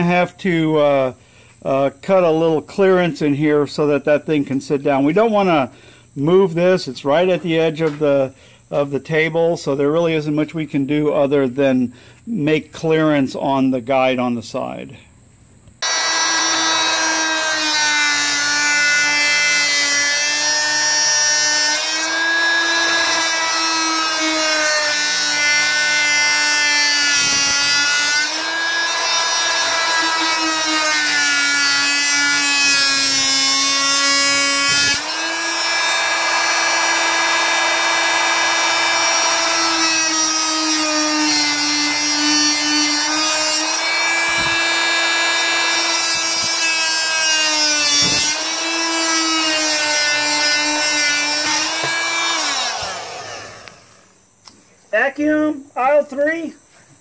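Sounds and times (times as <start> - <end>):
oscillating tool cutting wood: 15.8 - 54.0.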